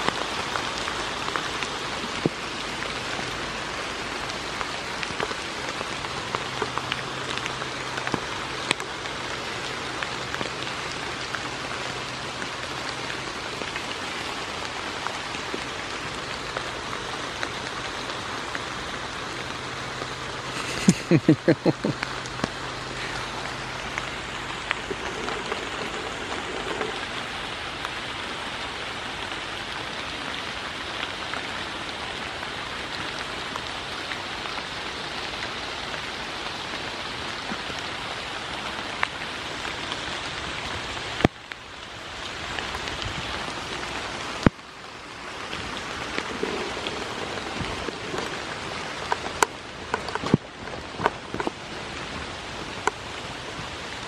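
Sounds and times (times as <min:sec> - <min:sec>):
raindrop taps: 0:00.0 - 0:28.0, 0:42.6 - 0:54.0
steady rain hiss: 0:00.0 - 0:54.0.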